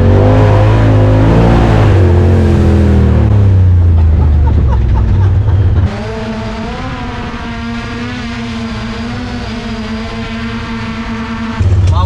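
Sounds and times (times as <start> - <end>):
loud low engine running: 0.0 - 12.0
quieter wavering engine note: 5.0 - 12.0.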